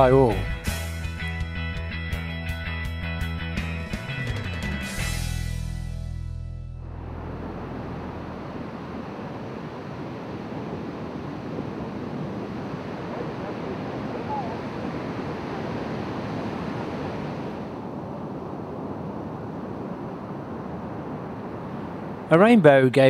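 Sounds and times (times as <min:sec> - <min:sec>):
ocean waves breaking: 0:06.9 - 0:22.9.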